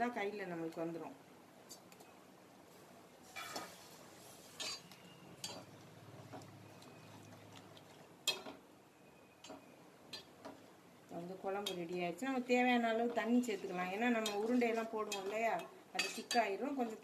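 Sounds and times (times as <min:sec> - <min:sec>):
ladle clinking against steel pot: 0:04.6 - 0:05.7.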